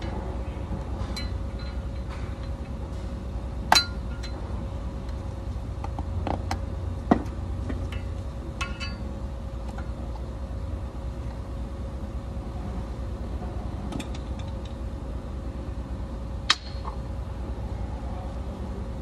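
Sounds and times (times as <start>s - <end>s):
steady low hum: 0.0s - 19.0s
metal tool clinking on wheel hub: 1.1s - 2.6s, 3.7s - 4.4s, 7.9s - 9.1s.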